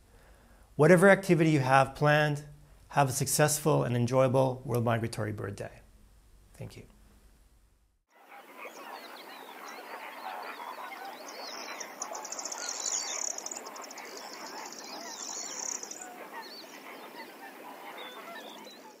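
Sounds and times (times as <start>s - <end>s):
flock of birds calling: 8.2s - 19.0s.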